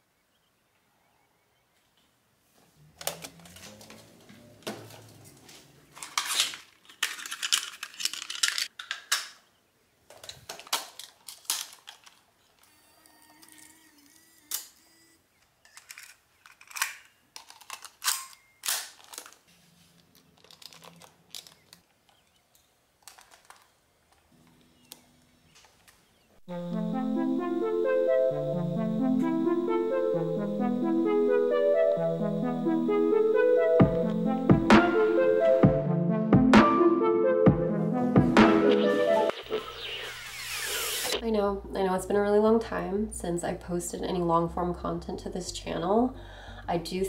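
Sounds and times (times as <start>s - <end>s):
camcorder whirring: 12.4s - 15.2s, 38.8s - 41.2s.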